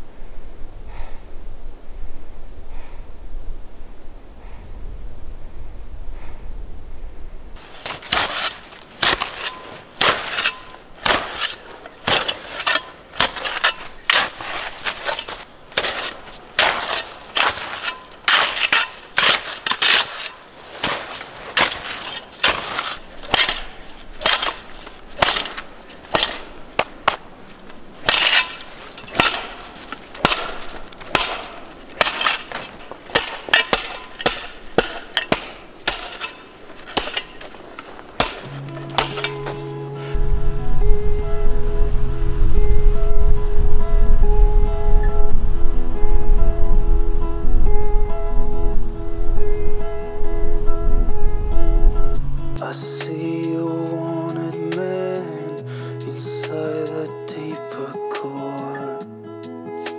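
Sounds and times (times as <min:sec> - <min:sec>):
shovel scraping packed snow: 0:07.6 - 0:40.2.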